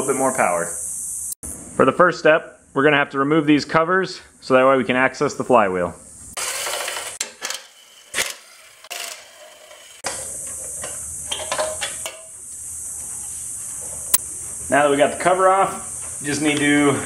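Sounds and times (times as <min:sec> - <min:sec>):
steady background hiss: 0:00.0 - 0:06.4, 0:10.1 - 0:17.0.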